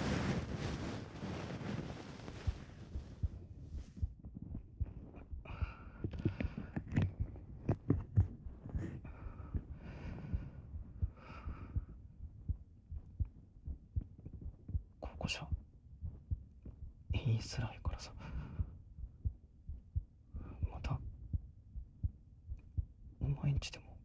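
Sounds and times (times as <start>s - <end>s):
ear pick scratching and thumping: 0.0s - 15.0s
breaths: 5.4s - 7.1s, 8.7s - 12.0s, 18.1s - 18.9s, 20.3s - 20.7s.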